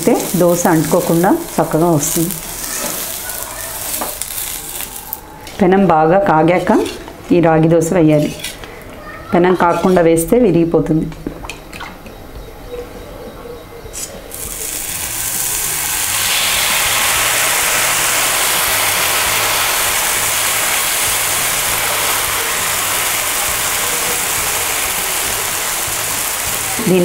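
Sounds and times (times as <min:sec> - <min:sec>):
batter sizzling on a hot pan: 0:00.0 - 0:05.2, 0:14.3 - 0:27.0.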